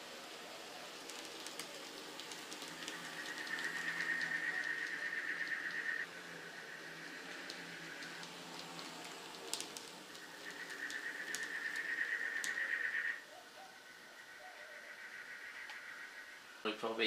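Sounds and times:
wheels clicking on track: 0:00.0 - 0:13.0.

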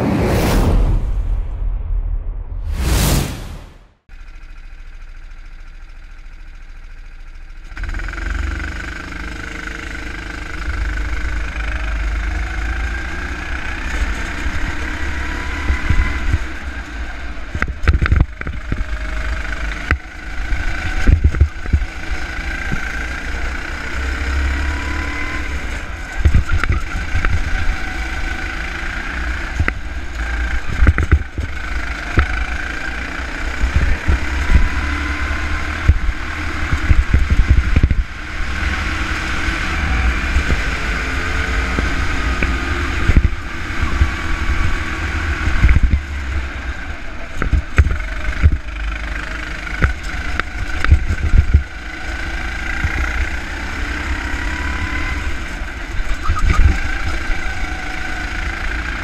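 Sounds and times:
go-kart engine revving: 0:04.1 - 0:59.0
sharp thumps: 0:17.6 - 0:22.0, 0:29.4 - 0:32.6, 0:33.5 - 0:46.1, 0:49.8 - 0:51.7.

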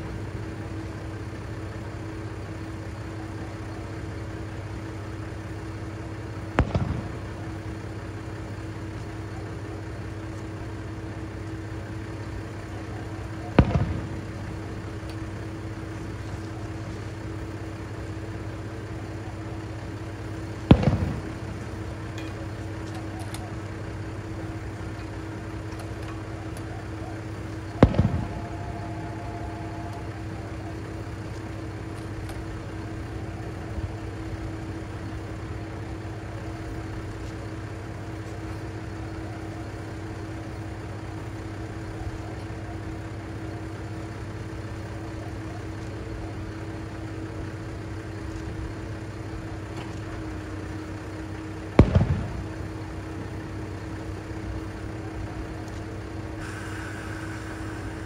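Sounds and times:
diesel railcar engine idling: 0:00.0 - 0:58.0
firework bursts booming: 0:06.3 - 0:08.9, 0:12.5 - 0:18.2, 0:19.6 - 0:22.2, 0:26.2 - 0:32.2, 0:51.6 - 0:54.4.

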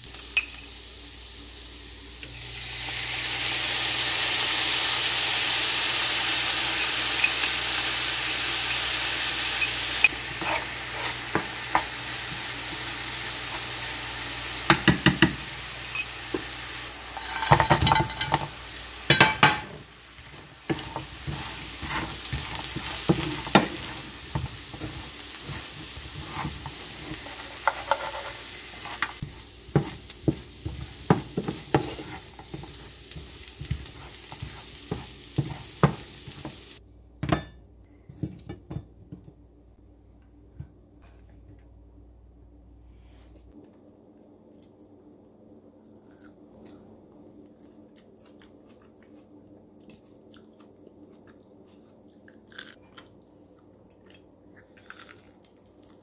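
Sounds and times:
garlic sizzling in oil: 0:00.0 - 0:36.8
spatula tapping and scraping: 0:19.1 - 0:36.6.

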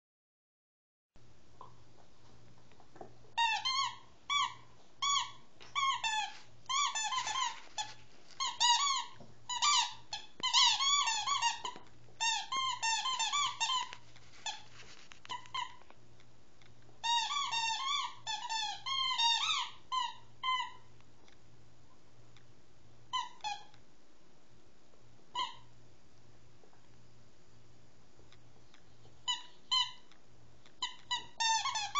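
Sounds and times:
squeaky dog toy squeaking: 0:03.4 - 0:15.8, 0:17.0 - 0:21.0, 0:23.1 - 0:23.7, 0:25.3 - 0:25.7, 0:29.2 - 0:30.2, 0:30.8 - 0:31.9.

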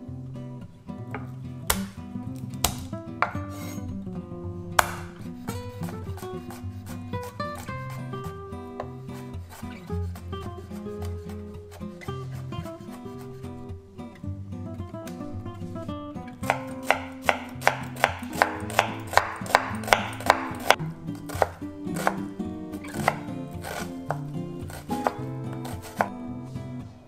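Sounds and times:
plucked-string background music: 0:00.0 - 0:27.0
knife chopping on wooden board: 0:01.1 - 0:02.0, 0:04.8 - 0:13.3, 0:16.4 - 0:26.2.

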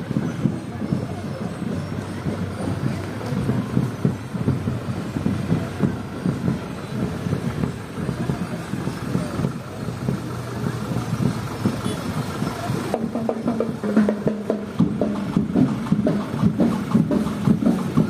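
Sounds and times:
truck engine running at low speed: 0:00.0 - 0:13.9.

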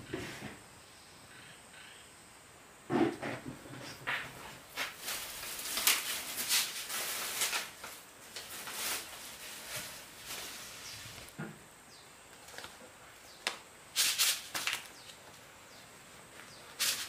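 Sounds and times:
plastic bag crinkling: 0:04.8 - 0:11.3, 0:14.0 - 0:15.0.

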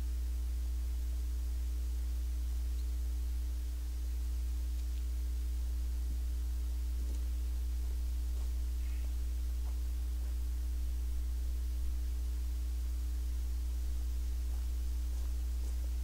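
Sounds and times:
low electrical hum: 0:00.0 - 0:16.0
faint ticks: 0:02.5 - 0:03.4, 0:04.1 - 0:05.2, 0:07.0 - 0:11.0.

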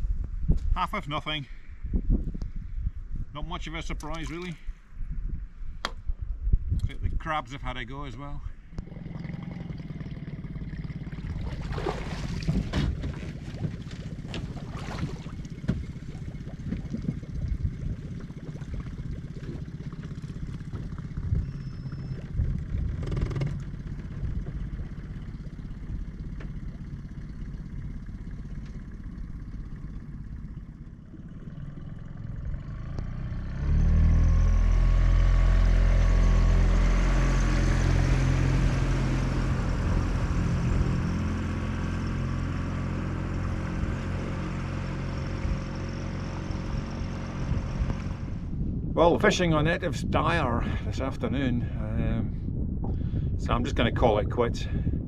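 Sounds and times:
low rumble: 0:00.0 - 0:55.0
outboard motor running: 0:03.8 - 0:04.7, 0:08.6 - 0:55.0
gear knocking in boat: 0:08.8 - 0:32.3.

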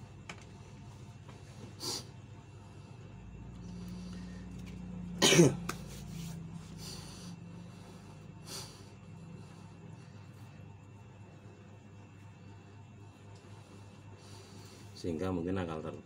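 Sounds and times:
steady low hum: 0:00.0 - 0:16.0
man coughing: 0:05.2 - 0:05.8.

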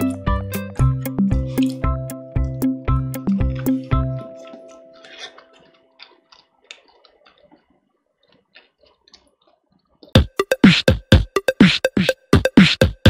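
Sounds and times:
background music: 0:00.0 - 0:05.5
closed-mouth chewing: 0:01.1 - 0:10.2
electronic music with hard beat: 0:10.2 - 0:13.0.

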